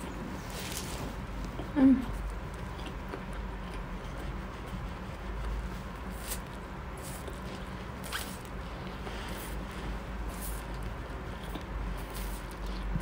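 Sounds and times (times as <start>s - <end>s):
chewing: 0.6s - 8.2s, 10.4s - 13.0s.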